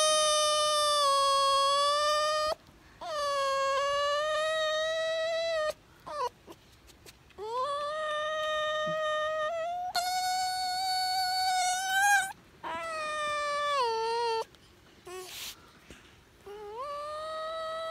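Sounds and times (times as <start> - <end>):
fox whining cries: 0.0 - 6.6, 7.4 - 15.6, 16.4 - 17.9.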